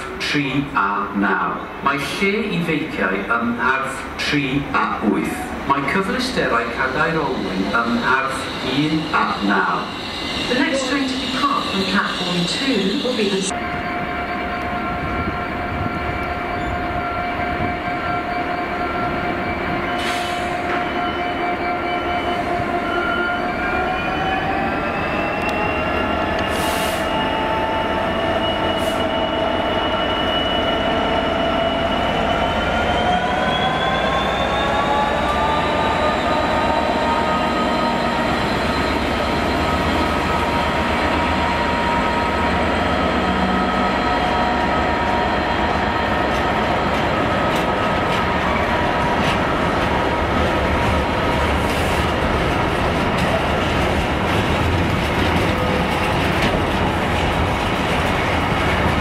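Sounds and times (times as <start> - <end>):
diesel locomotive engine: 0.0 - 59.0.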